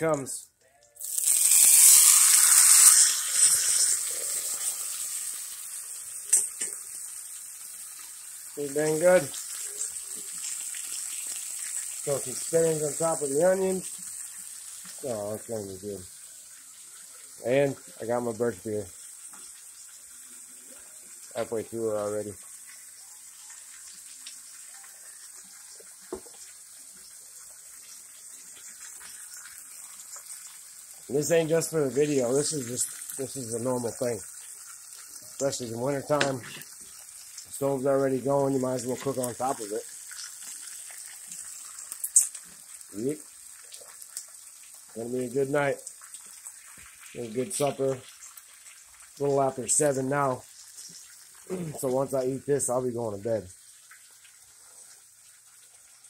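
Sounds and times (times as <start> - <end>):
steak sizzling in skillet: 1.0 - 56.0.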